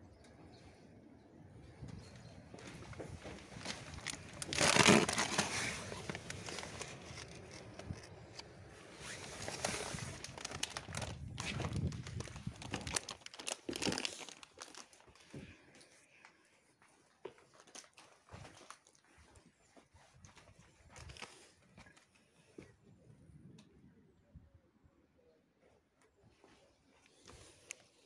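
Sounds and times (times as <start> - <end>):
footsteps crunching over rubble: 1.8 - 8.2, 9.4 - 22.7
loud rustling: 3.4 - 8.1.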